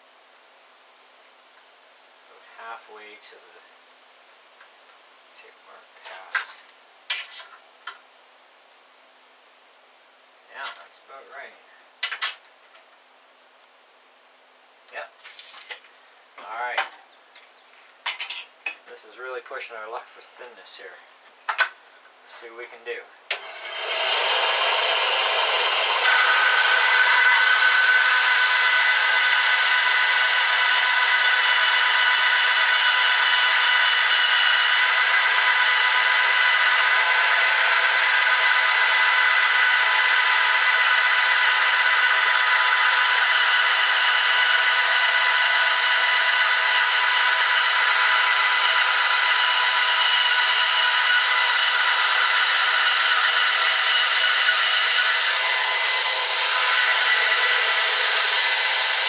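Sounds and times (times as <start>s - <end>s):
bandsaw motor and blade whine: 23.3s - 59.0s
hiss of saw cutting wood: 23.3s - 59.0s.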